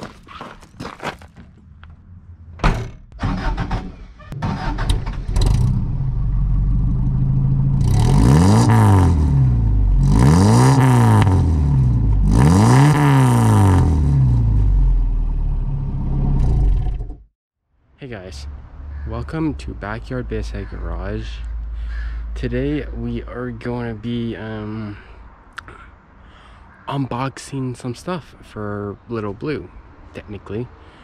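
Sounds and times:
car engine starting: 3.1 - 17.2
car engine revving: 4.5 - 17.2.

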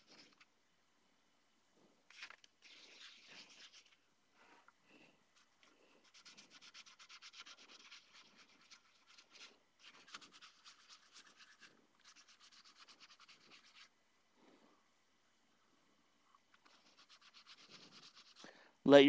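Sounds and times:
wet sandpaper rasping: 2.2 - 4.0, 6.0 - 13.9, 16.6 - 18.5.

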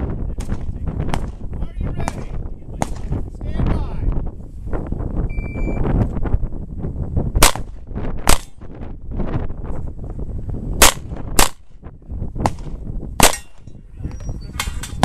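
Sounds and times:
pistol gunshots: 0.4 - 3.2, 7.4 - 8.6, 10.8 - 11.7, 12.4 - 13.7.

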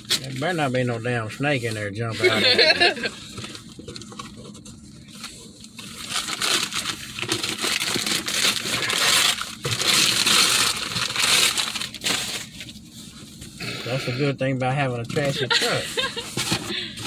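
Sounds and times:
wrapping paper tearing and crinkling: 5.0 - 12.9.

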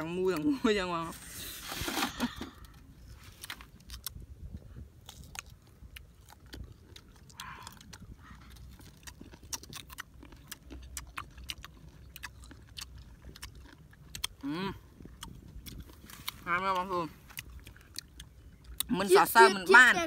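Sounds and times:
person chewing crunchy fruit: 1.5 - 19.6.

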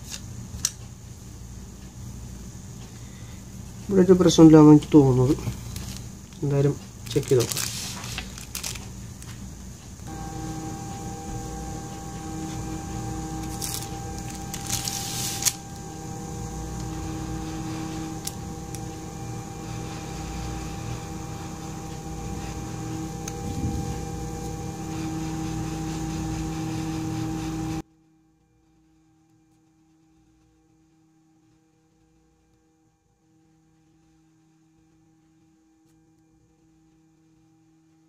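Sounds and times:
hot-air blower humming: 0.0 - 28.0.

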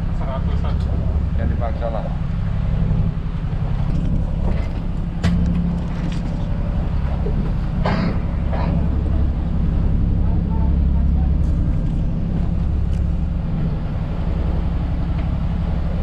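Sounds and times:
boat engine humming: 0.0 - 16.0.

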